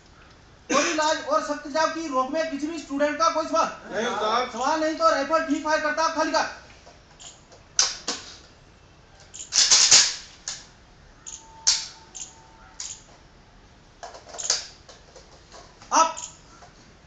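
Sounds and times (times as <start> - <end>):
rifle mechanism metallic clicks: 11.3 - 13.1, 14.3 - 14.7.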